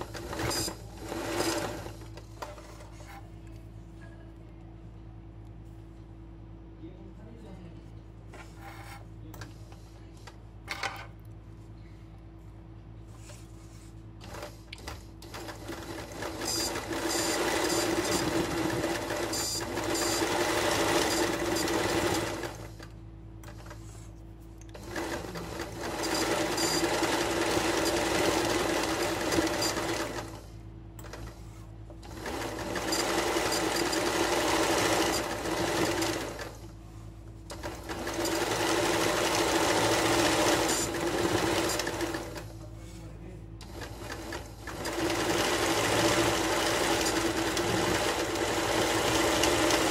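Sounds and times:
sewing machine stitching: 0.0s - 3.1s, 14.2s - 22.8s, 24.7s - 31.4s, 32.0s - 36.6s, 37.5s - 42.5s, 43.6s - 49.9s.

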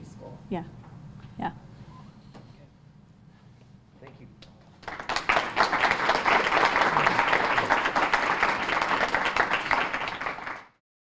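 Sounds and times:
audience applauding: 4.8s - 10.8s.

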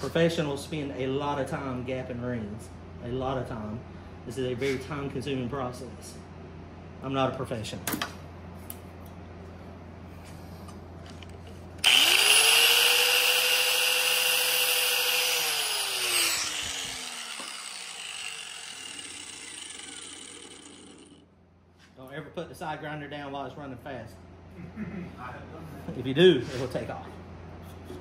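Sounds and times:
angle grinder grinding metal: 11.8s - 21.2s
angle grinder winding down: 11.8s - 21.2s.

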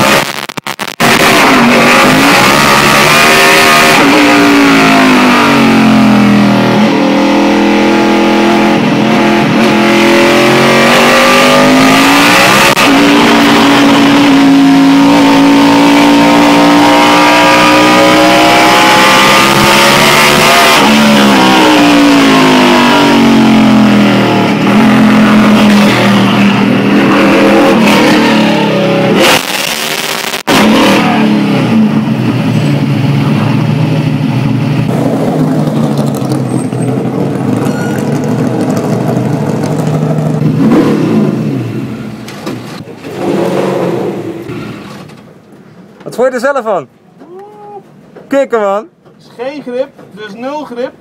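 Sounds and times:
race car engine from cockpit: 0.0s - 45.4s.

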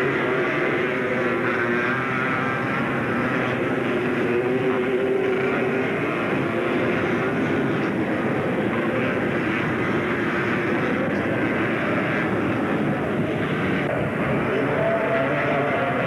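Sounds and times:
atv engines racing: 0.0s - 16.0s.

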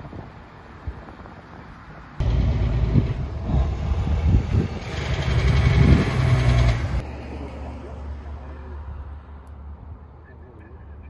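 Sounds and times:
outdoor background: 0.0s - 11.0s
road noise: 0.0s - 11.0s
vehicle engine rumble: 0.0s - 11.0s.

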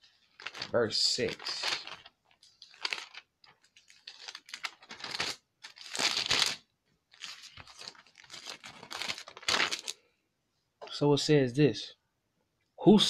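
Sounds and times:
book pages turning and rustling: 0.2s - 10.0s.

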